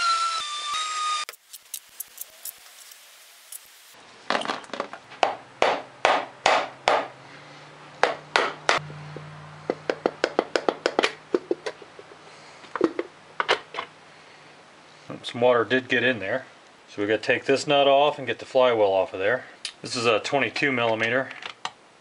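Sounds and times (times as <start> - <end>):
hammer knocking on metal cover: 5.2 - 7.1.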